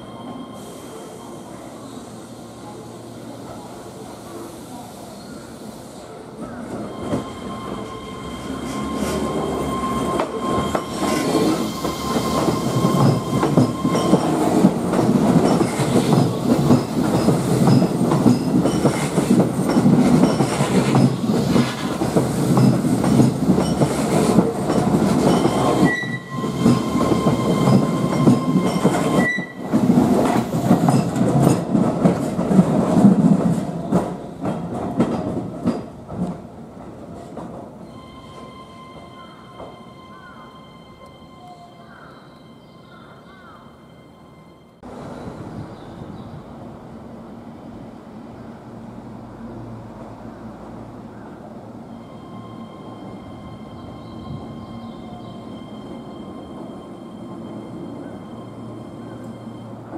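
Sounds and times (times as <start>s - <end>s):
train wheels clattering on rails: 8.6s - 37.8s.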